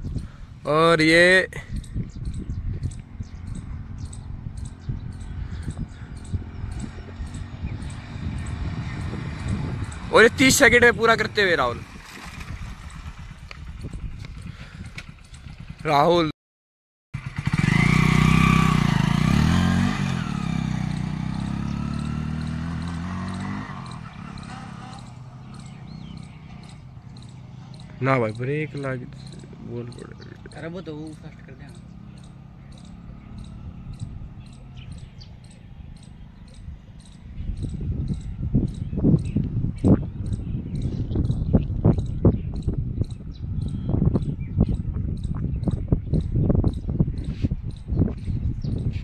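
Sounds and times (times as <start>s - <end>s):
wind on microphone thumps: 0.0s - 0.4s, 1.7s - 15.8s, 36.2s - 49.0s
motorcycle engine revving: 1.8s - 16.3s, 17.2s - 49.0s
insect chirping: 21.4s - 28.0s, 31.0s - 38.8s.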